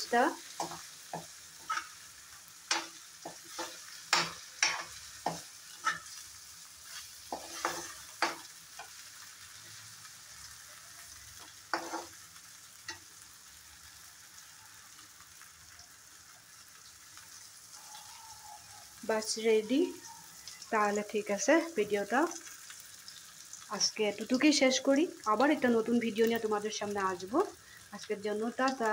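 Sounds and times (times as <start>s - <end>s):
curry sizzling: 0.0s - 28.9s
metal spatula scraping a pan: 0.5s - 2.1s, 2.7s - 9.0s, 11.5s - 12.2s.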